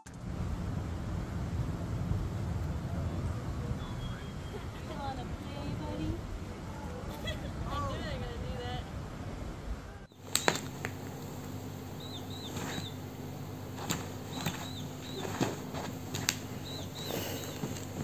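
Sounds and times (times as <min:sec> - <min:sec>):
high chirping sound effects: 0:11.4 - 0:13.1.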